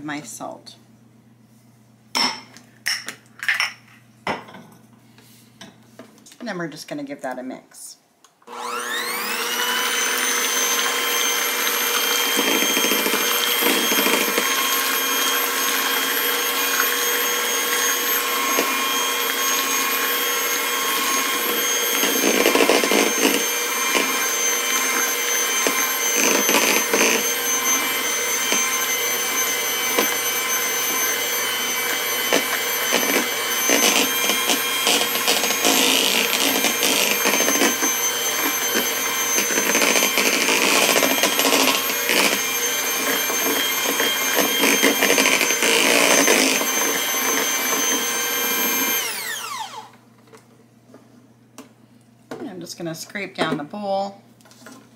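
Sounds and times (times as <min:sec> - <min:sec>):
electric hand mixer whining: 0:08.4 - 0:50.1.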